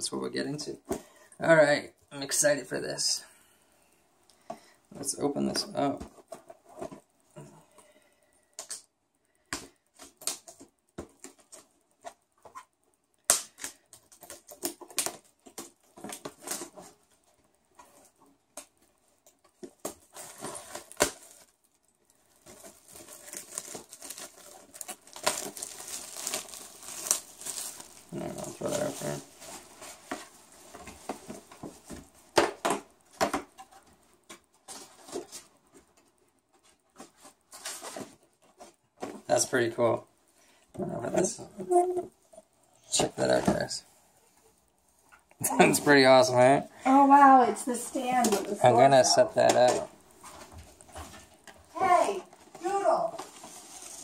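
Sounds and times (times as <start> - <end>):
packaging crinkling and tearing: 19.7 - 32.2, 48.2 - 54.0.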